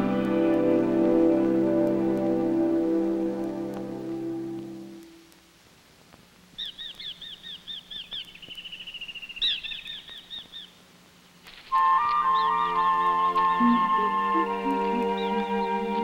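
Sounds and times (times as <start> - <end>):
soft music: 0.0 - 5.3, 11.7 - 16.0
songbird chirping and trilling: 6.6 - 10.8, 11.7 - 16.0.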